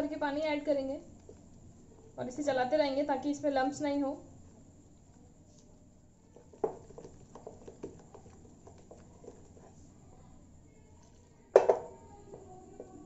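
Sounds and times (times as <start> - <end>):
spatula stirring batter in glass bowl: 1.0 - 2.1, 6.2 - 10.0.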